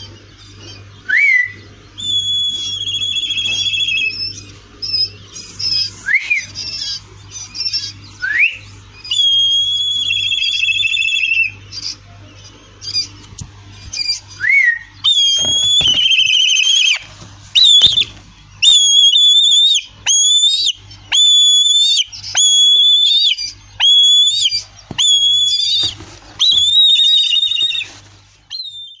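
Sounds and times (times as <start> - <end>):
kite whistling calls: 5.4 - 11.2, 14.6 - 20.5, 22.5 - 27.9.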